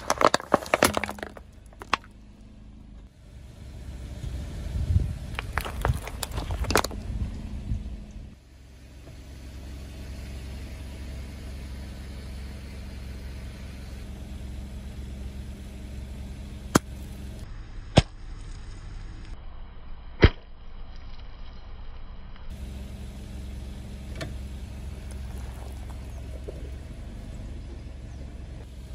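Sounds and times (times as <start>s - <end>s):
tyre crushing rubber balls: 0.0s - 2.2s, 5.3s - 7.0s, 16.6s - 19.2s, 24.7s - 27.7s
crackling and popping: 0.0s - 2.5s, 5.3s - 7.1s, 24.8s - 27.4s
car engine running: 0.0s - 19.4s, 22.5s - 28.9s.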